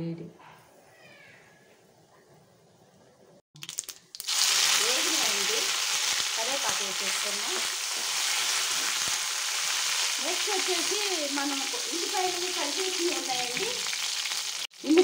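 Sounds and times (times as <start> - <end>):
seeds frying in hot oil: 3.6 - 15.0.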